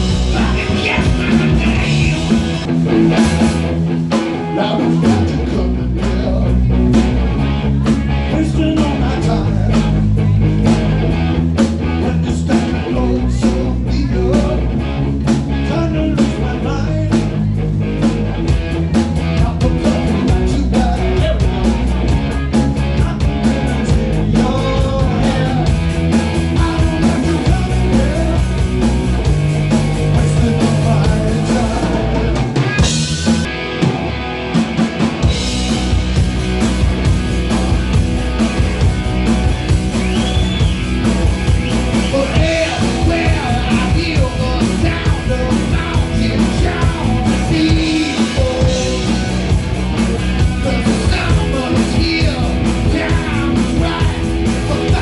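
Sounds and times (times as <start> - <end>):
man singing: 0.0 - 2.7, 4.4 - 7.0, 8.2 - 10.3, 11.8 - 14.8, 15.5 - 17.5, 19.2 - 32.9, 41.9 - 49.6, 50.4 - 55.0
rock band playing: 0.0 - 55.0.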